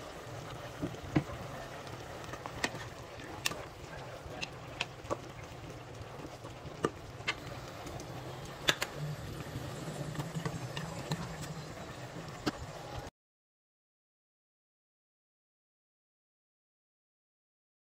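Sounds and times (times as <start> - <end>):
steady low hum: 0.0 - 13.1
spatula stirring pot of soup: 0.4 - 12.6.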